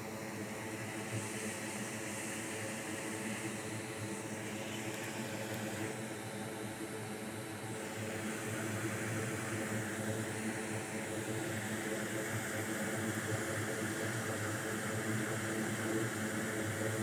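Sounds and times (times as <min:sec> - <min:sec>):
electric fan whirring: 0:02.5 - 0:12.9.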